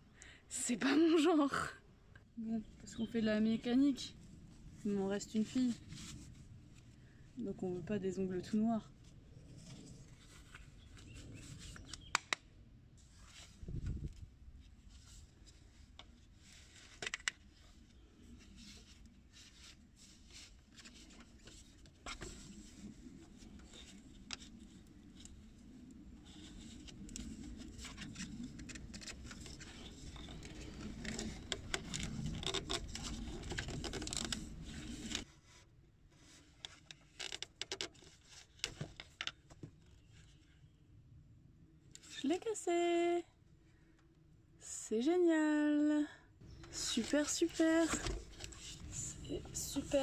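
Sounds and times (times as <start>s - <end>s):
plastic and rubber clicks and scrapes: 9.5s - 12.5s, 14.9s - 35.6s, 36.2s - 40.0s, 46.5s - 50.0s.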